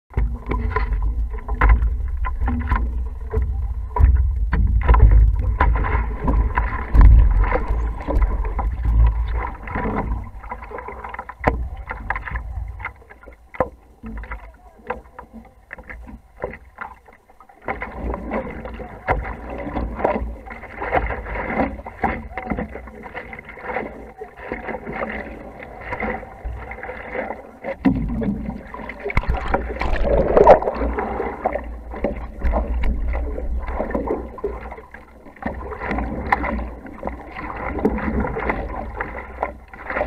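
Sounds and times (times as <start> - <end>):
low rumble: 0.1 - 13.1, 28.0 - 34.6
water splashing against paddleboard: 0.1 - 40.0.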